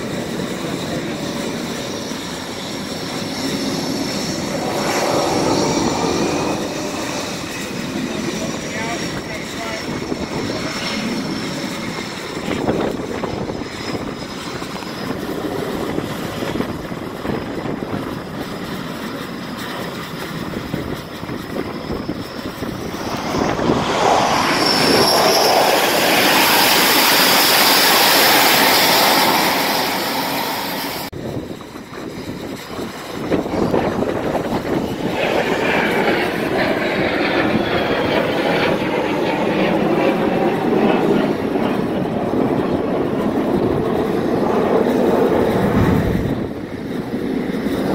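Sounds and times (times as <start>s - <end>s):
jet engine roar with turbine whine: 0.0s - 47.9s.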